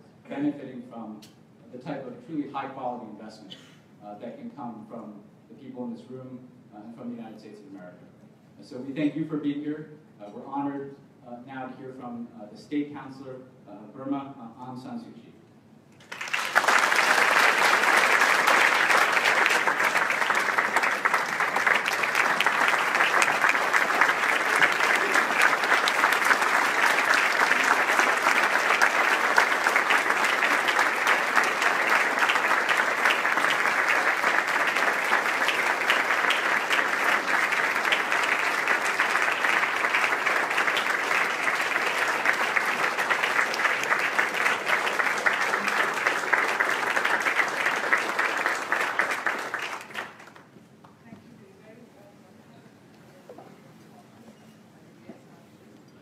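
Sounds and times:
large audience applauding: 0:16.0 - 0:50.5.

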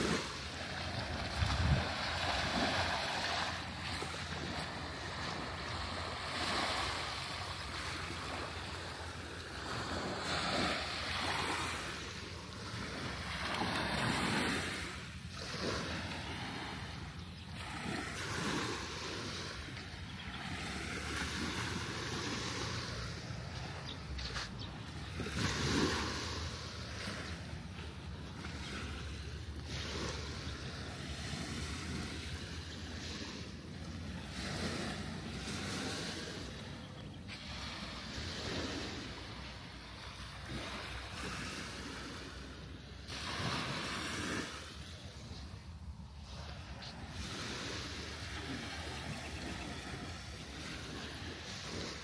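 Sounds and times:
wind rumble on microphone: 0:00.0 - 0:06.6
small waves washing on sand: 0:00.0 - 0:52.0
wind rumbling on microphone: 0:00.0 - 0:52.0.

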